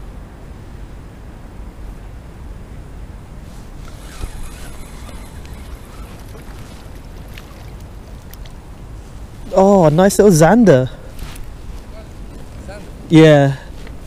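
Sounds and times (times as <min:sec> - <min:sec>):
low wind rumble: 0:00.0 - 0:14.0
microphone handling noise: 0:03.4 - 0:08.4
fishing reel clicks and rustles: 0:03.8 - 0:08.5.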